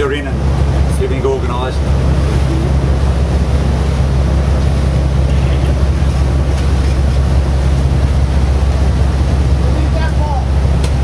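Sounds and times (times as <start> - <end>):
boat engine drone: 0.0 - 11.0
water noise: 0.0 - 11.0
wind: 0.0 - 11.0.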